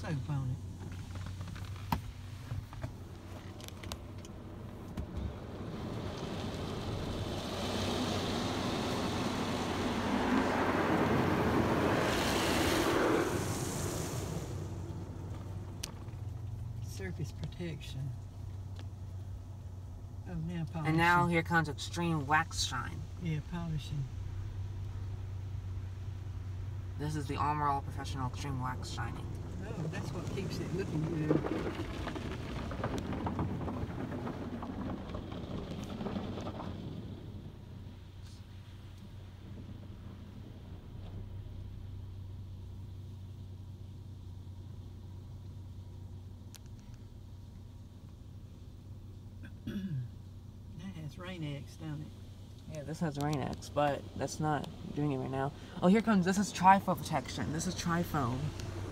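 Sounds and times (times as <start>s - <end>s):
car wash water spray: 4.0s - 16.8s.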